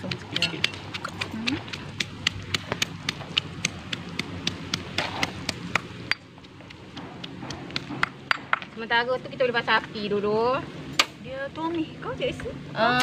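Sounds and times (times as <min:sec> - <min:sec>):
stone pestle pounding in mortar: 0:00.0 - 0:08.7.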